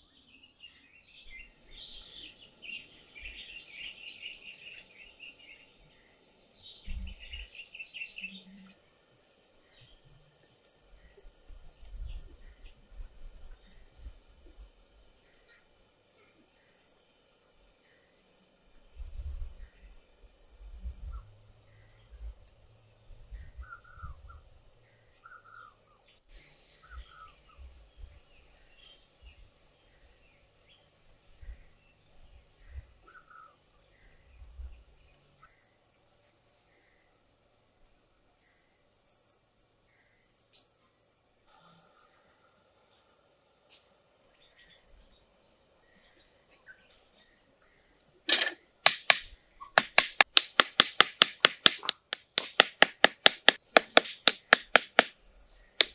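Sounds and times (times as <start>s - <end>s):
crickets chirping: 0.0s - 55.9s
tool knocking on wood: 48.3s - 55.2s.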